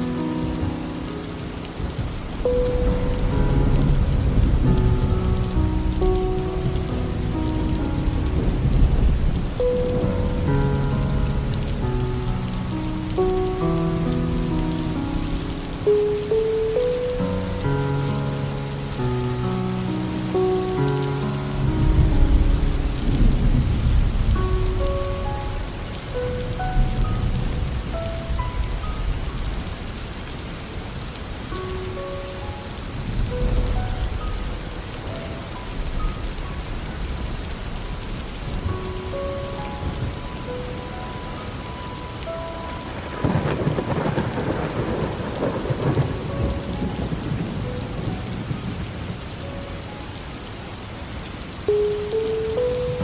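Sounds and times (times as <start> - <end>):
soft slow melody of held notes: 0.0 - 53.0
steady rain falling: 0.0 - 53.0
thunder rolling: 1.8 - 12.1, 21.6 - 25.8, 42.9 - 49.2
loud thunderclap: 43.0 - 48.8.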